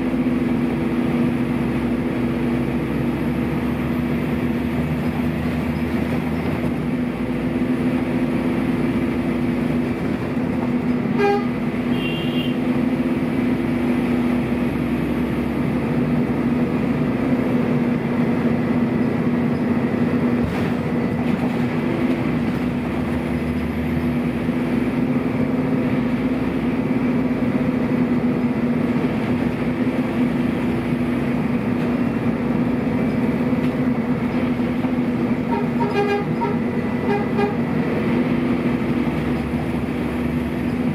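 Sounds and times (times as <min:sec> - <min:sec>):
diesel bus engine running: 0:00.0 - 0:40.9.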